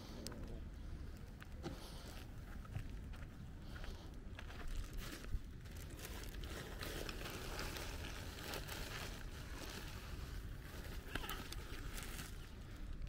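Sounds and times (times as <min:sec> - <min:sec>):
plastic bag crinkling: 0:04.7 - 0:13.0.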